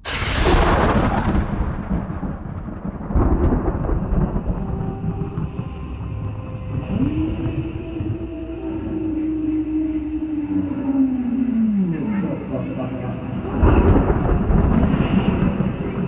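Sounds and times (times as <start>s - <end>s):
thunder crack and rumble: 0.0s - 9.2s, 13.2s - 16.0s.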